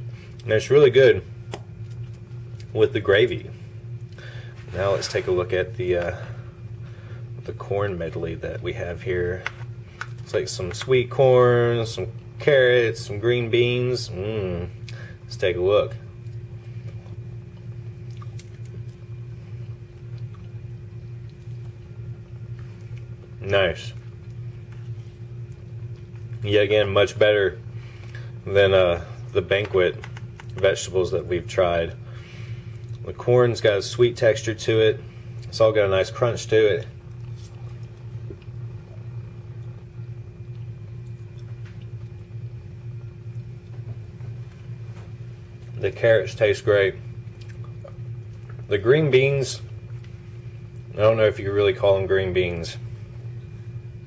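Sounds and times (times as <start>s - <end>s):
low room tone hum: 0.0s - 54.0s
person chewing crunchy vegetables: 16.2s - 26.4s, 37.0s - 39.8s, 47.2s - 48.7s.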